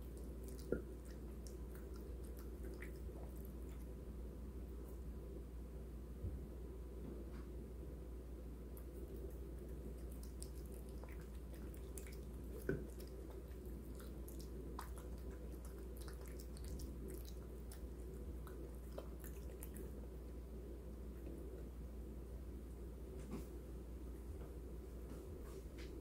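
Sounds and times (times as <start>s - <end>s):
cat chewing meat: 0.0s - 4.0s, 8.7s - 21.6s.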